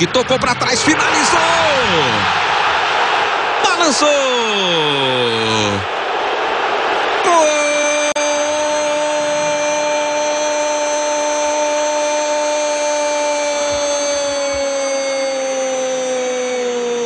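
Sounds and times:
stadium crowd cheering: 0:00.0 - 0:17.0
commentator's long goal cry: 0:07.2 - 0:17.0.

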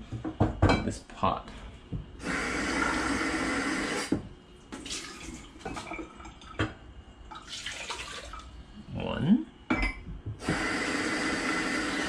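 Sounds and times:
water poured into a pot: 0:04.8 - 0:06.6, 0:07.3 - 0:08.6.

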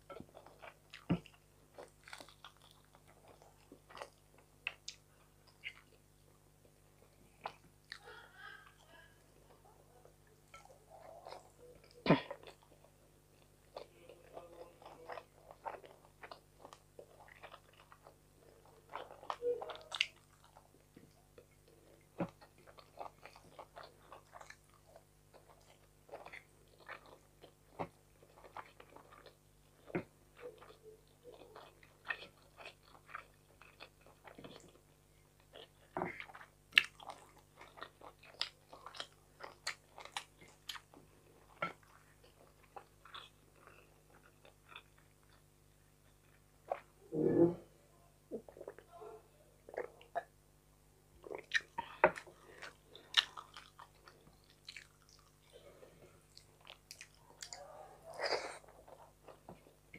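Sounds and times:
person chewing and biting: 0:51.2 - 0:55.6.

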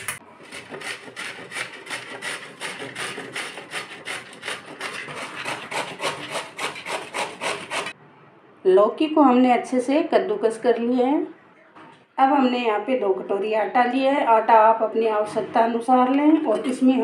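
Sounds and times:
gourd grated on metal grater: 0:00.0 - 0:07.9.

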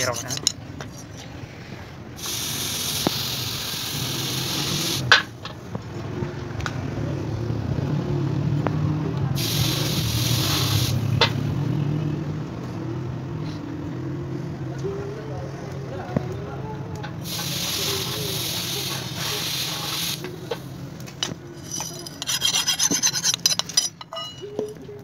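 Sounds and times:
hot metal sizzling in water: 0:02.2 - 0:05.1, 0:17.2 - 0:20.3.

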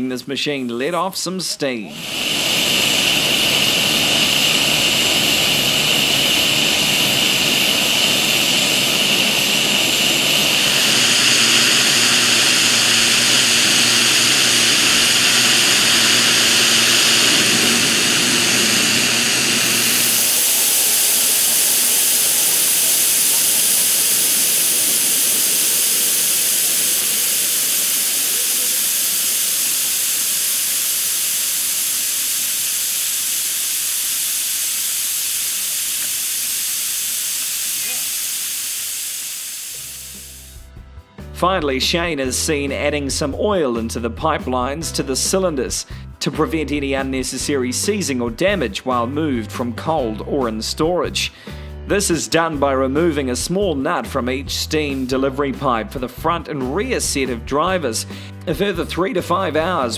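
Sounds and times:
steam blowdown hissing: 0:01.4 - 0:40.7, 0:54.8 - 0:59.9.

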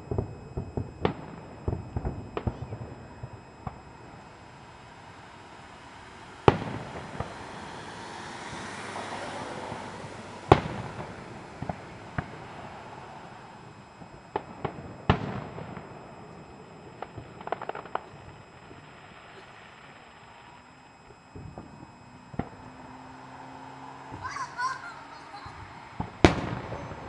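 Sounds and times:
small firework pops: 0:00.0 - 0:04.3, 0:06.5 - 0:07.4, 0:10.5 - 0:23.0, 0:26.0 - 0:27.0
firework shells bursting: 0:00.0 - 0:04.9, 0:10.5 - 0:23.2, 0:25.6 - 0:27.0
firework crackling pops: 0:00.0 - 0:24.4, 0:25.6 - 0:27.0.

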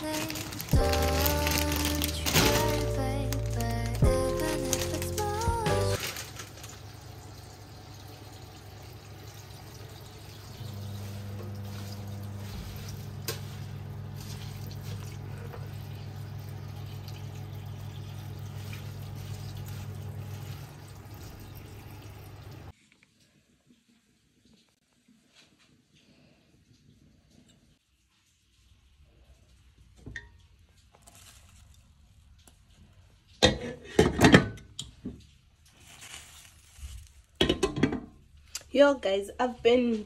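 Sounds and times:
water running from tap into sink: 0:04.8 - 0:22.7.

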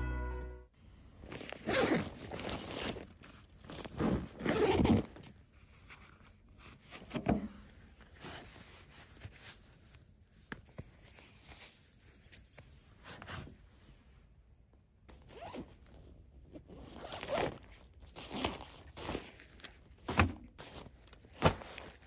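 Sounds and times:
fabric rustling and zipping: 0:01.2 - 0:05.2, 0:15.1 - 0:15.9, 0:16.6 - 0:19.7.

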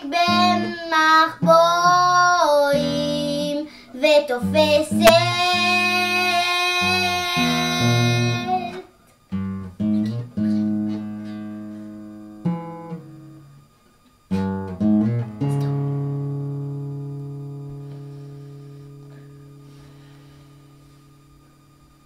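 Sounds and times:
girl singing: 0:00.0 - 0:08.8
acoustic guitar chords: 0:14.3 - 0:21.4.

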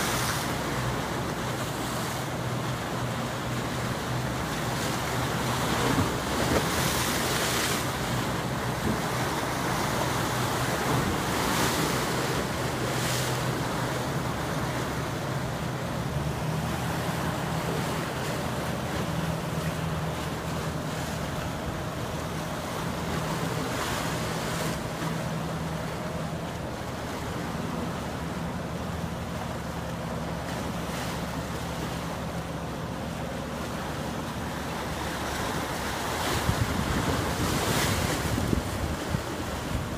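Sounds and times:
low steady engine hum: 0:00.0 - 0:39.9
splashing river water: 0:00.0 - 0:39.9
wind gusting on microphone: 0:36.4 - 0:39.9.

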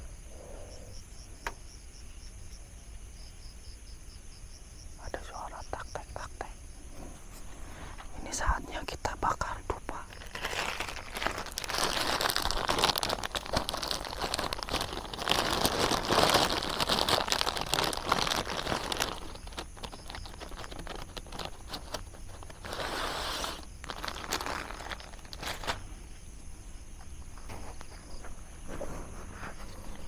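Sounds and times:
crinkling and rustling: 0:09.9 - 0:26.2, 0:27.0 - 0:30.0.

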